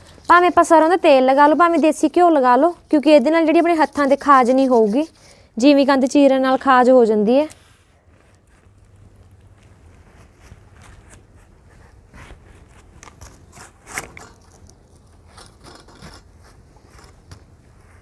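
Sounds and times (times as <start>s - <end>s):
knife scraping and cutting skin: 12.6s - 17.4s.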